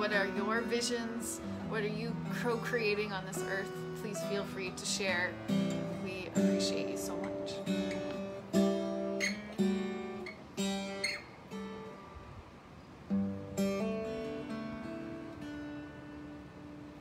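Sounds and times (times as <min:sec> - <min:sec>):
acoustic guitar strumming: 0:00.0 - 0:12.1, 0:13.0 - 0:17.0.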